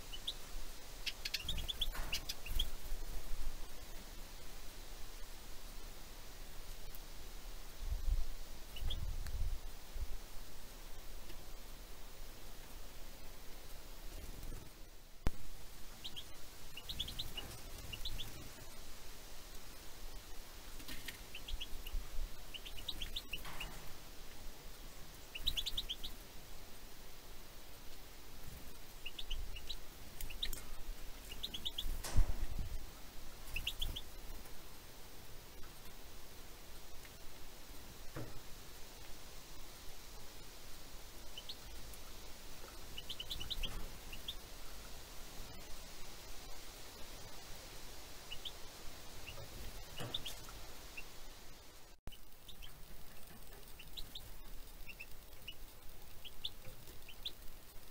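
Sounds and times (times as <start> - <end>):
songbirds chirping: 0.0 - 57.9
faint clicks: 29.1 - 32.6.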